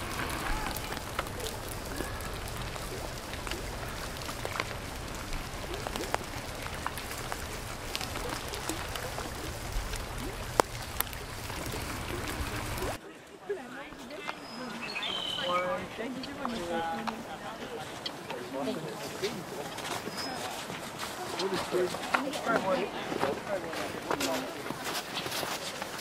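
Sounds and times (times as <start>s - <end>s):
steady low rumble: 0.0s - 13.0s
water dripping and trickling: 0.0s - 13.0s.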